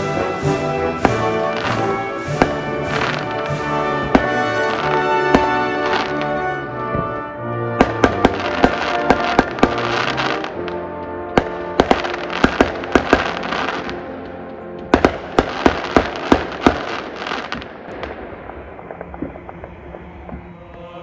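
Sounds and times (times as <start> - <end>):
fireworks bangs: 0.0 - 14.1, 14.9 - 21.0
live music: 0.0 - 16.2.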